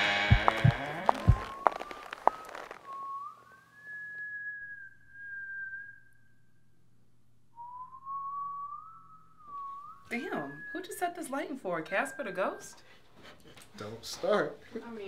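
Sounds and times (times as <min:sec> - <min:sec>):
eerie whistle-like melody: 0:01.1 - 0:06.9, 0:07.5 - 0:12.9.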